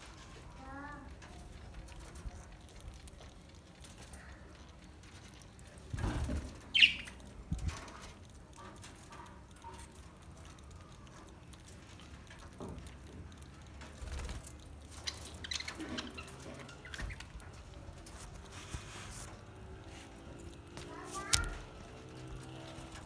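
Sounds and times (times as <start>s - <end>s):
budgerigar chirps: 6.8s - 7.1s
wings fluttering: 13.7s - 23.0s.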